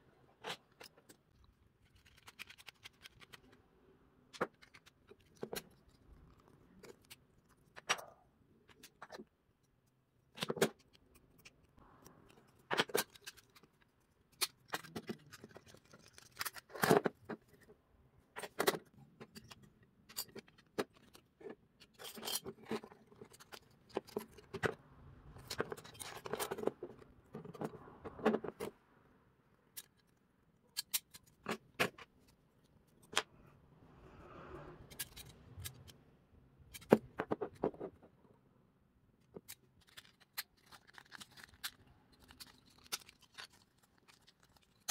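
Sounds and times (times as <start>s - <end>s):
small metal and plastic pieces clicking: 0.4s - 3.6s, 4.3s - 9.2s, 10.3s - 17.1s, 29.7s - 32.1s, 39.2s - 44.9s.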